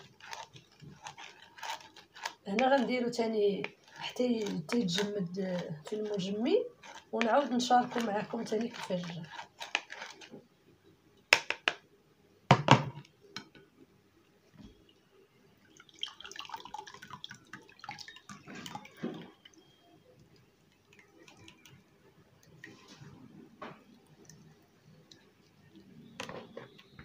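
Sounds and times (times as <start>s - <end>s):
juice pouring: 0.0s - 7.2s, 14.8s - 26.2s
juice dripping through sieve: 0.0s - 10.3s, 14.5s - 27.0s.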